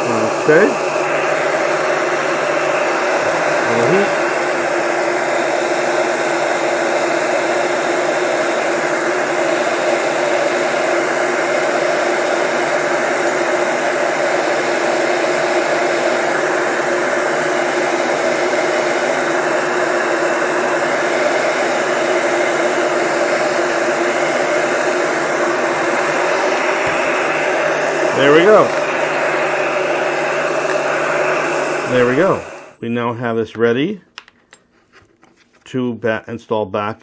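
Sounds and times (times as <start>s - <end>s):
heat gun blowing air: 0.0s - 32.8s.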